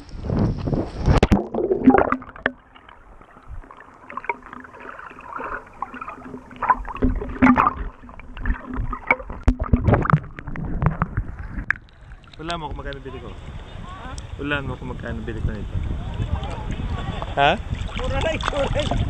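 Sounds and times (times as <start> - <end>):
underwater gurgling and knocking: 0.0 - 13.0, 15.7 - 19.0
sea water splashing: 0.0 - 19.0.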